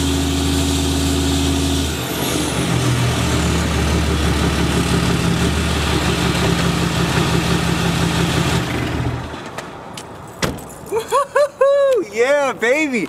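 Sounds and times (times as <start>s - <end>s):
diesel engine idling: 0.0s - 9.4s.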